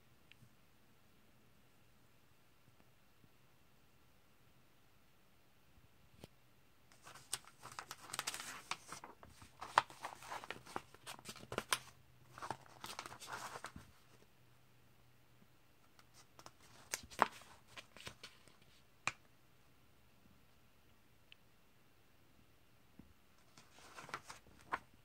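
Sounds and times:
paper pages rustling: 0:06.9 - 0:14.2, 0:16.0 - 0:18.8, 0:23.4 - 0:24.9.

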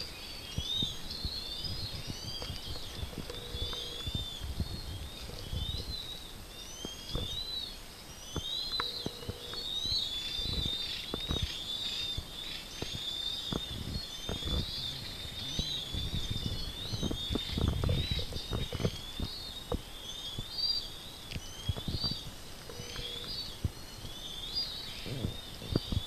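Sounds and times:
small birds chirping: 0:00.0 - 0:26.0.

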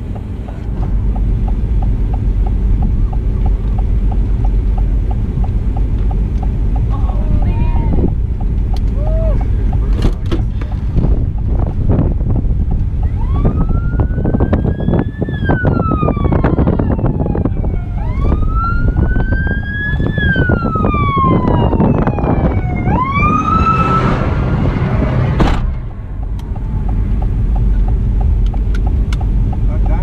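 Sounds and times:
rushing noise with ticks: 0:00.0 - 0:14.7, 0:26.1 - 0:30.0
siren wailing: 0:13.0 - 0:25.3.

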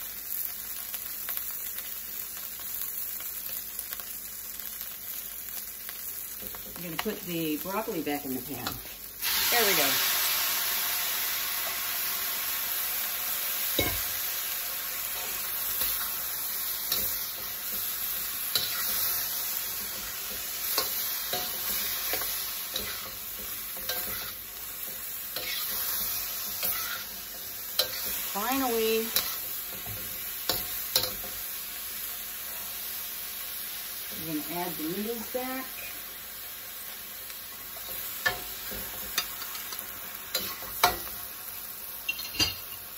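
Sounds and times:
food sizzling in a wok: 0:00.0 - 0:42.9
metal spatula scraping a wok: 0:16.8 - 0:31.3.

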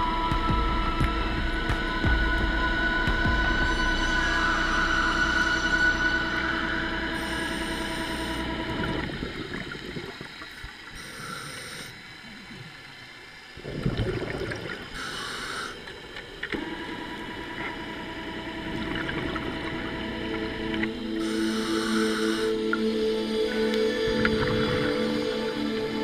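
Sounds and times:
ambient music chords: 0:00.0 - 0:10.5, 0:15.9 - 0:26.0
regulator inhale hiss: 0:07.2 - 0:08.5, 0:10.6 - 0:12.4, 0:14.9 - 0:16.1, 0:21.0 - 0:24.1
exhaled bubbles rushing: 0:08.7 - 0:11.0, 0:13.5 - 0:15.1, 0:18.4 - 0:20.5, 0:24.1 - 0:25.6.

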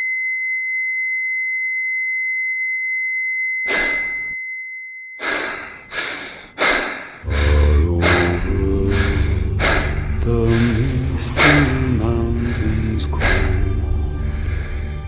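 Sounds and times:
heavy gasping breaths: 0:05.2 - 0:15.0
music with deep bass: 0:07.3 - 0:15.0.

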